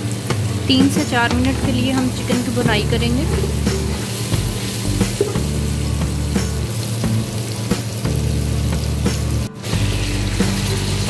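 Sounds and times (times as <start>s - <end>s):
chicken sizzling in a pot: 0.0s - 11.0s.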